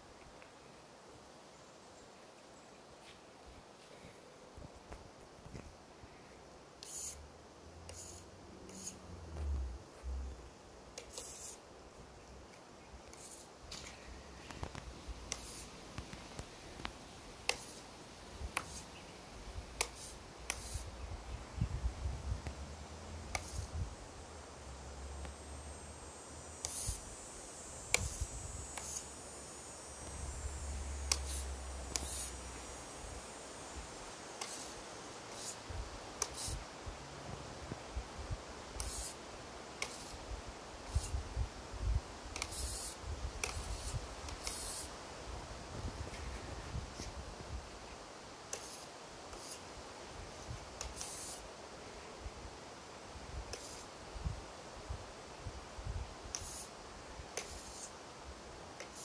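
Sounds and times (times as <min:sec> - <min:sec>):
short hisses: 0:06.8 - 0:07.2, 0:26.6 - 0:33.2.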